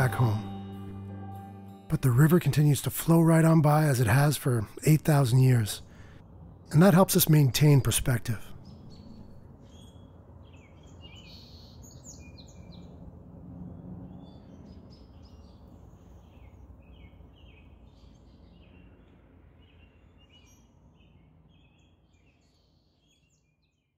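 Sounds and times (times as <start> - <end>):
small birds chirping: 6.9 - 13.0, 14.1 - 23.9.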